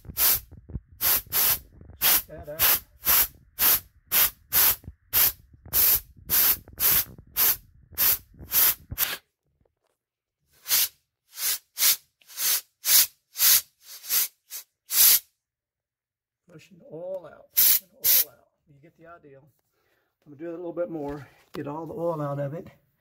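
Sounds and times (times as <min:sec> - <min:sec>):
compressed air blasts through hose: 0:00.0 - 0:09.2, 0:10.6 - 0:15.3, 0:17.5 - 0:18.3.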